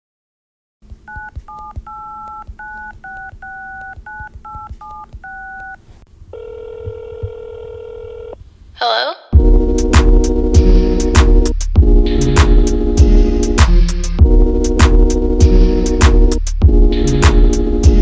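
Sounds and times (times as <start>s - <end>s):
touch-tone keypad beeps: 1.1s - 5.8s
telephone ringing tone: 1.1s - 8.4s
loud music: 9.4s - 18.0s.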